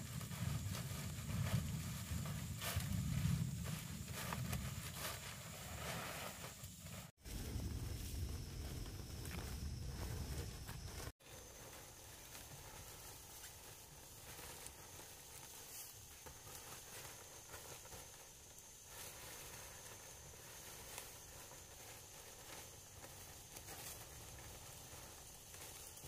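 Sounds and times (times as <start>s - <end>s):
dry palm leaves rustling: 0.0s - 26.0s
soft light scrapes: 0.4s - 18.2s.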